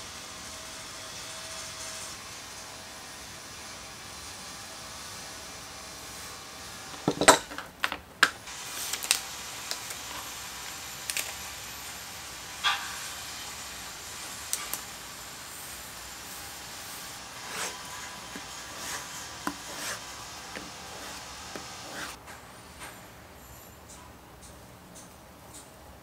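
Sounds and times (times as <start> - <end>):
steady hiss: 8.4 - 24.4
paper and leather handled: 16.3 - 22.2.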